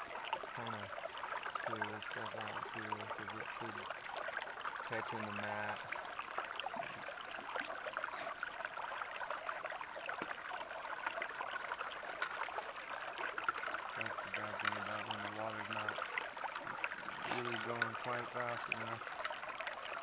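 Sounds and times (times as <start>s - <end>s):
water rushing through sluice box: 0.0s - 20.0s
grit ticking: 12.0s - 19.2s.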